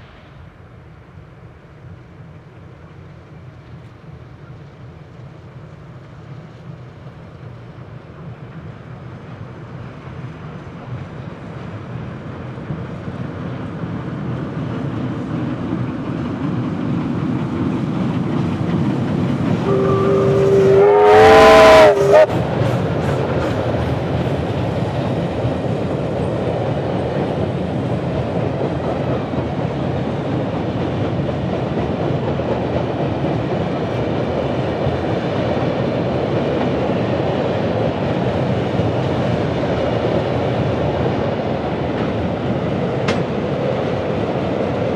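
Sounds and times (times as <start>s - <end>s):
steam locomotive working: 0.0s - 44.9s
train wheels clattering on rails: 2.3s - 44.9s
chime whistle: 19.7s - 20.8s.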